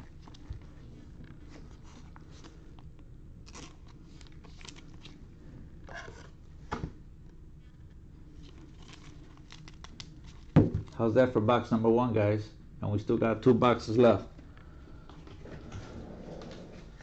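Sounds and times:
rustling of cards and plastic: 0.0 - 5.3, 7.6 - 11.0
low steady hum: 0.0 - 17.0.

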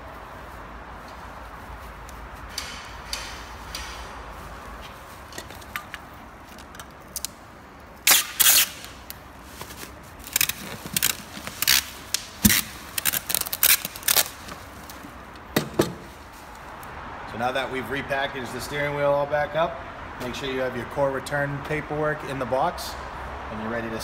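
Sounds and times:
packing tape ripping off tape gun: 8.0 - 15.0
paper and bubble wrap crinkling: 8.1 - 15.1.

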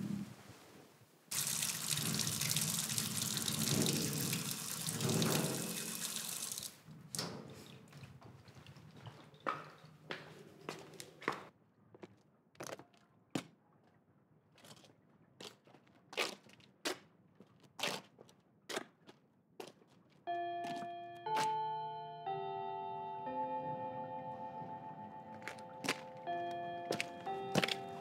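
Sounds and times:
footsteps walking: 7.6 - 12.8, 17.4 - 21.6, 24.3 - 28.0
soft music with held notes: 20.3 - 28.0.

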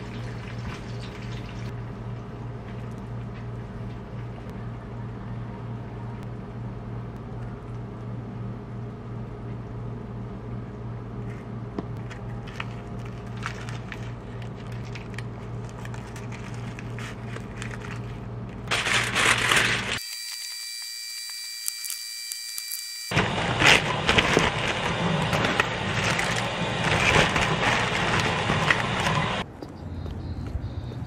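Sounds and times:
steady low hum: 1.6 - 20.0, 22.6 - 31.0
seaweed crinkling: 12.1 - 20.0, 23.6 - 29.4.

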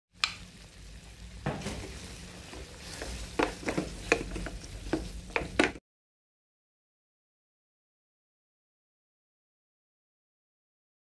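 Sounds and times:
low frying sizzle: 0.1 - 5.8
wooden spatula scraping pan: 1.6 - 5.8.

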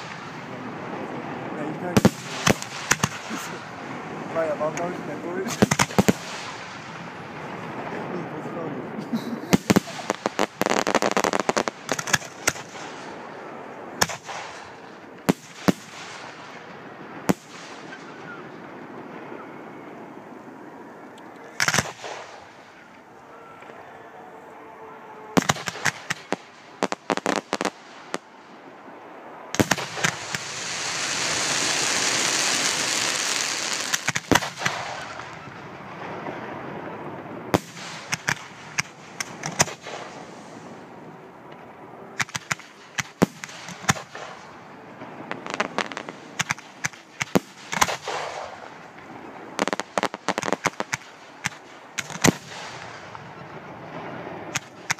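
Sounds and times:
firework crackling: 0.0 - 24.3, 25.2 - 54.9
firework shells bursting: 2.0 - 3.7, 4.7 - 7.2, 9.5 - 13.3, 21.5 - 23.0, 25.4 - 28.6, 29.5 - 35.6, 37.6 - 40.8, 42.2 - 44.6, 45.3 - 53.4, 54.5 - 54.9
long firework hiss: 9.5 - 13.3, 29.5 - 35.4, 37.5 - 41.1.

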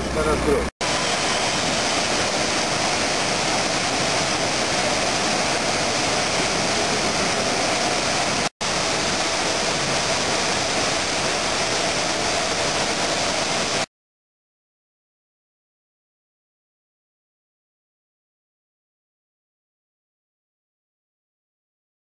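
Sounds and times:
water rushing through channels: 0.0 - 13.9.

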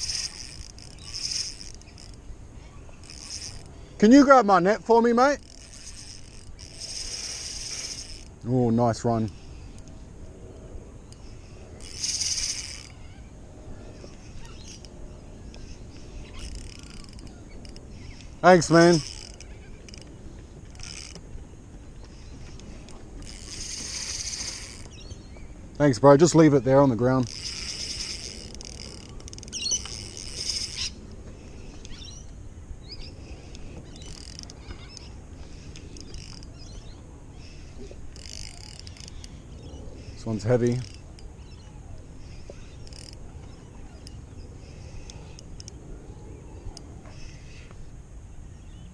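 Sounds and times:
fishing reel drag buzzing: 0.0 - 10.0, 10.9 - 21.3, 22.1 - 25.1, 25.7 - 45.8
bird chirps: 11.0 - 20.0, 29.5 - 31.0, 31.6 - 45.4.

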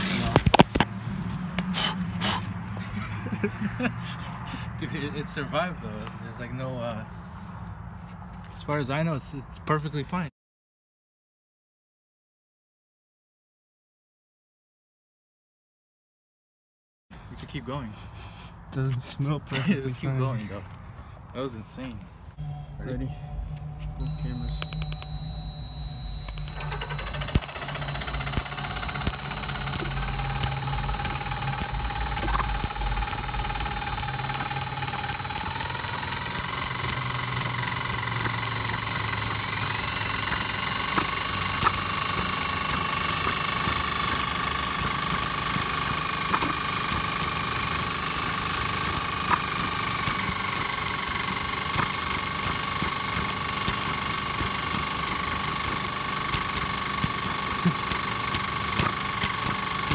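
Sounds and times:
whine rising in pitch: 22.4 - 56.0
small engine clattering: 24.0 - 59.9.

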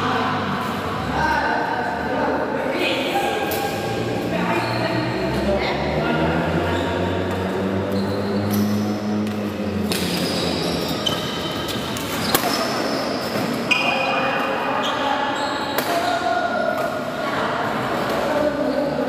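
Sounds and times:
echoing background chatter: 0.0 - 19.0
shoes squeaking on court: 6.7 - 16.1
racket hitting shuttlecock: 9.2 - 10.2, 11.2 - 13.6.

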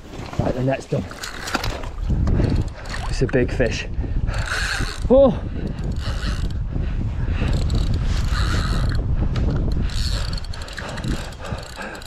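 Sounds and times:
fishing reel gears whirring and clicking: 1.2 - 3.4, 4.3 - 6.6, 7.4 - 12.0
heavy panting breaths: 5.4 - 12.0.

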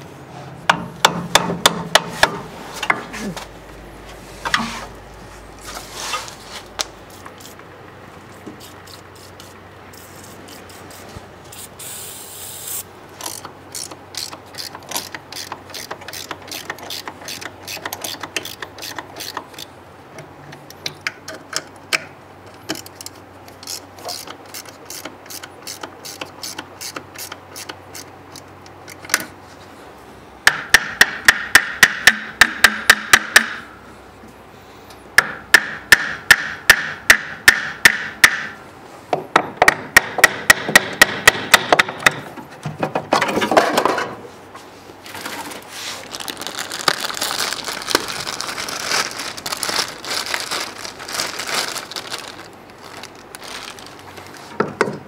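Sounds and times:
ratchet wrench clicking: 12.6 - 19.7.

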